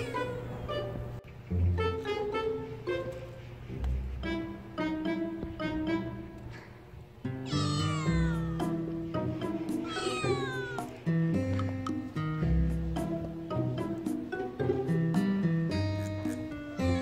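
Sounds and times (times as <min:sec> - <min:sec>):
background music with plucked notes: 0:00.0 - 0:06.6, 0:07.2 - 0:17.0
kitten meowing: 0:07.5 - 0:08.6, 0:09.8 - 0:11.0.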